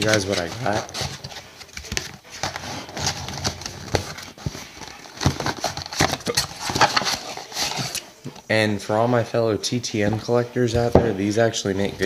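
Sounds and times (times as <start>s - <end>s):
cardboard packaging ripping and crinkling: 0.0s - 8.0s.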